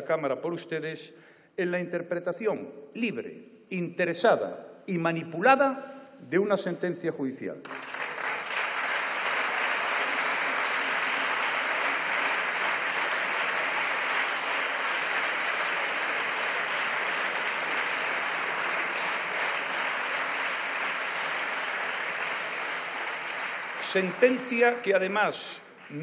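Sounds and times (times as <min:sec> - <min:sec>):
crowd applause: 0:07.6 - 0:26.0.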